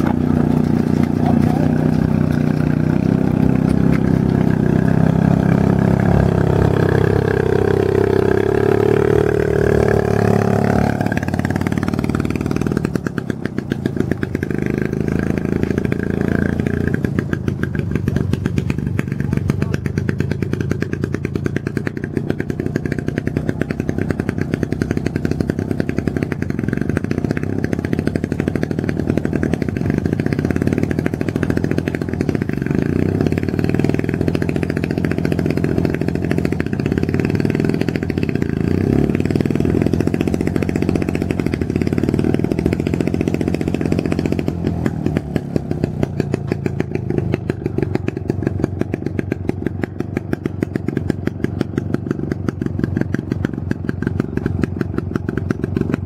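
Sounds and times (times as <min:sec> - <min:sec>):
small engine puttering: 0:00.0 - 0:56.0.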